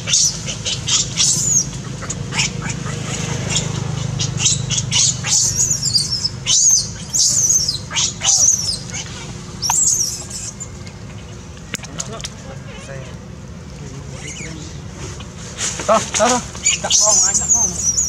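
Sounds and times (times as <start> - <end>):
baby monkey shrill squeals: 0.0 - 10.8, 14.2 - 14.5, 16.6 - 18.0
steady low hum: 0.0 - 18.0.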